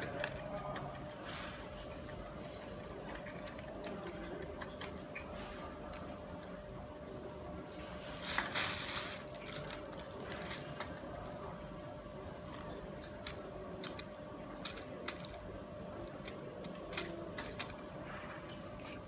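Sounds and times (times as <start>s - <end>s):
plastic bag rustling: 7.7s - 11.4s.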